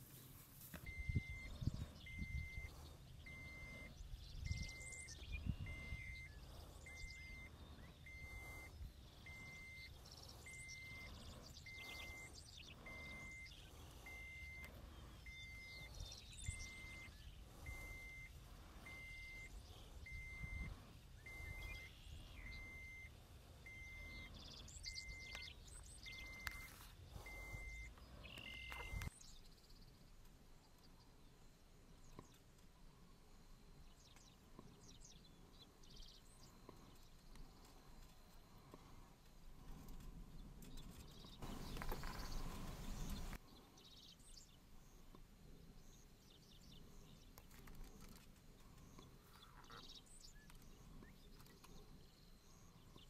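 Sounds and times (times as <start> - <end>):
birds chirping: 0.0 - 53.0
short electronic beeps: 0.8 - 29.1.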